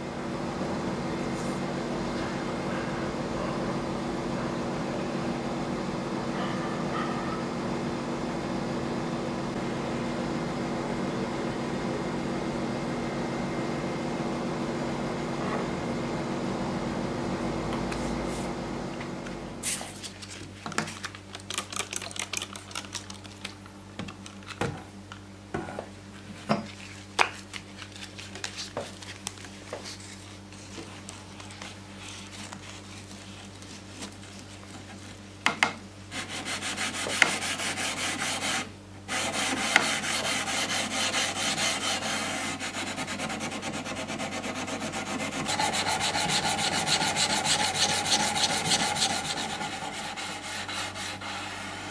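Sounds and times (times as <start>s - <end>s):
sandpaper sanding metal blade: 36.1s - 51.8s.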